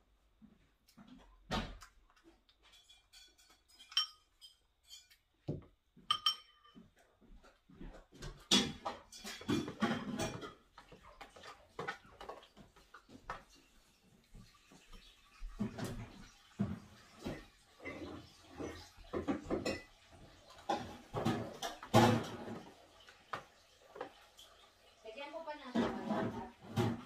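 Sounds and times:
dishes and cutlery clinking: 0:02.2 - 0:07.1, 0:07.9 - 0:13.7, 0:14.7 - 0:24.3, 0:25.7 - 0:27.0.

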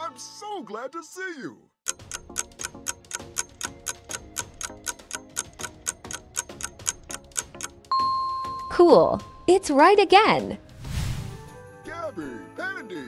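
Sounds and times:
clock-like ticking: 0:01.9 - 0:08.0
soft background music: 0:01.9 - 0:13.0.

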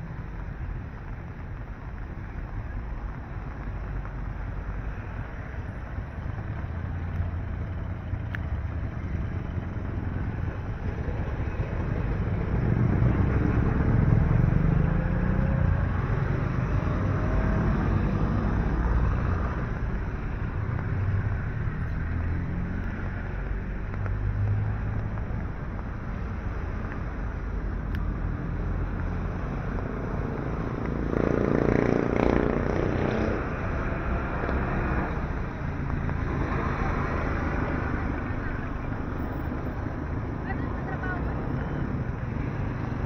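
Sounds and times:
vehicles passing on wet road: 0:00.0 - 0:43.0
motorcycle passing: 0:05.2 - 0:43.0.

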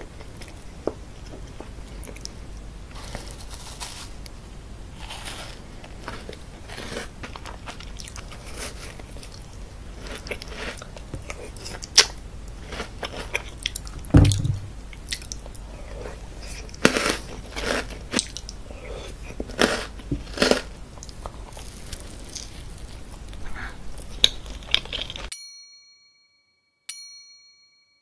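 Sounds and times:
chewing with crunchy bites: 0:00.2 - 0:04.4, 0:05.0 - 0:25.3
dull thump: 0:14.1 - 0:14.8.

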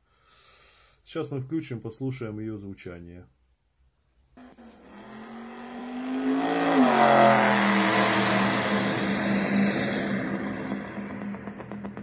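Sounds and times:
car engine revving: 0:04.4 - 0:12.0
rushing noise: 0:04.4 - 0:12.0.

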